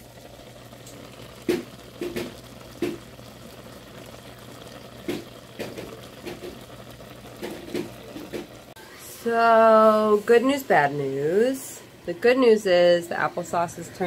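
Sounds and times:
pan popping and sputtering: 0.0 - 8.8
apples simmering in a skillet: 0.0 - 14.0.

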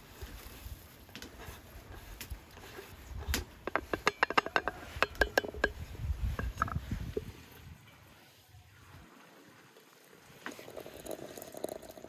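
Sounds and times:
porcelain clicks and clinks: 3.6 - 5.8.

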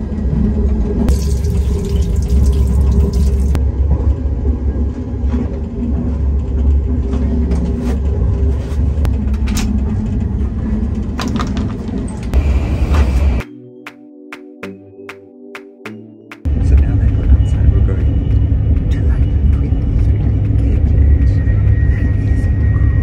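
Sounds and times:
train rumble: 0.0 - 1.1, 3.5 - 13.4, 16.5 - 23.0
tap water running into sink: 1.1 - 3.6.

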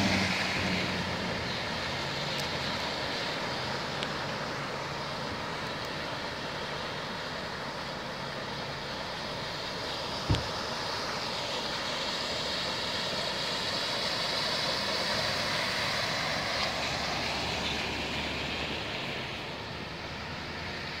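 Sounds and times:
truck driving through flood water: 0.0 - 21.0.

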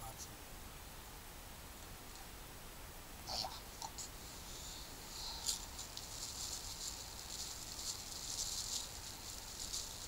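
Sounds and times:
plastic bag crinkling: 5.2 - 10.0.

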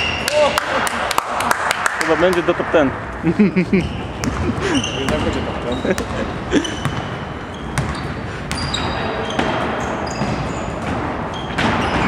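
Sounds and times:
sneakers squeaking on floor: 0.0 - 0.5, 3.8 - 12.0
indoor hall noise: 0.0 - 12.0
basketball bouncing: 3.8 - 12.0.

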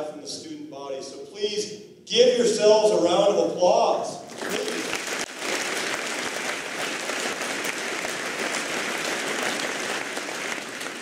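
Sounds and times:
crowd applauding: 4.3 - 11.0.

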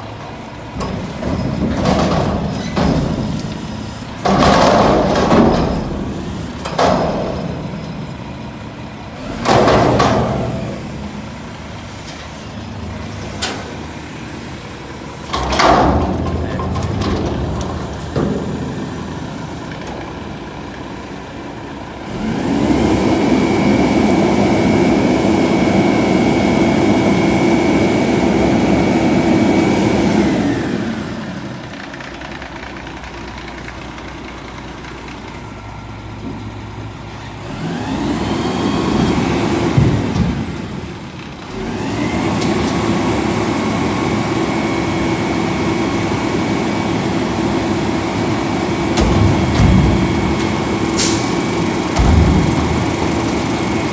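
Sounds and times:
diesel truck engine revving: 17.2 - 31.7, 36.7 - 53.9
hydraulic whine: 41.5 - 53.9.

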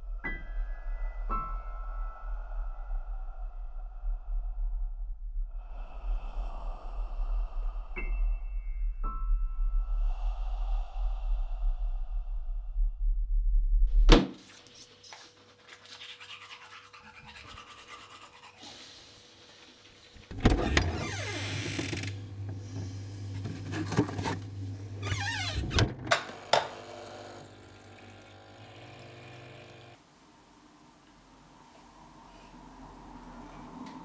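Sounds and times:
low drone: 0.0 - 13.9
coffee machine humming: 20.6 - 30.0
refrigerator rummaging: 23.4 - 24.4
coffee pouring into cup: 26.4 - 30.0.

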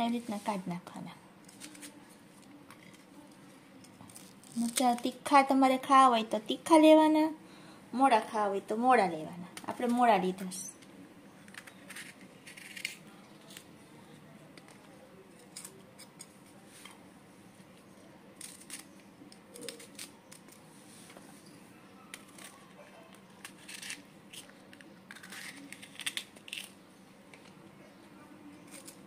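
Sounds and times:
knife cutting chillies: 23.4 - 26.7.

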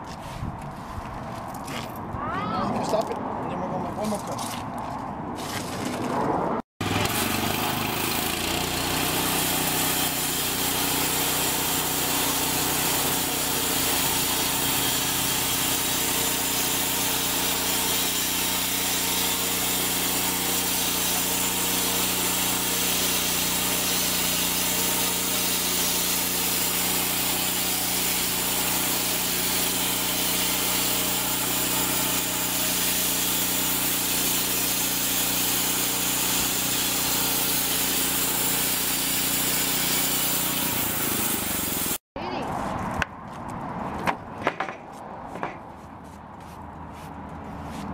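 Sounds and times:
band sawmill cutting log: 6.8 - 42.0.

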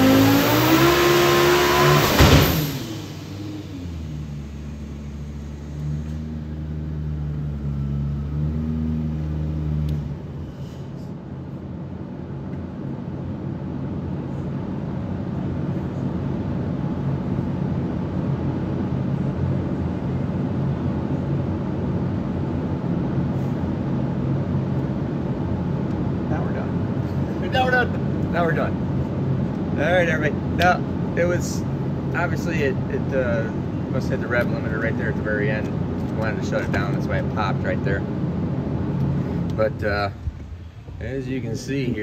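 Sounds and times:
steady room noise: 0.0 - 42.0
car engine idling: 1.8 - 10.4.

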